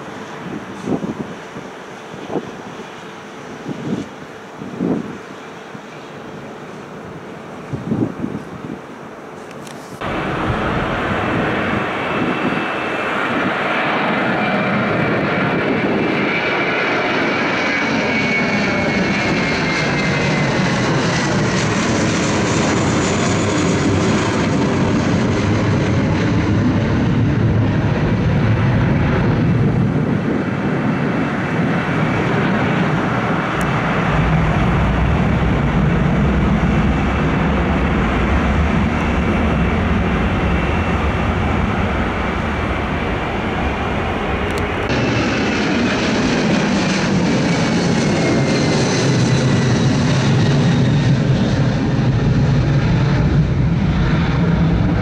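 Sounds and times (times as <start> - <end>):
high fan whine: 0.0 - 13.6
jet airliner roar: 0.0 - 55.0.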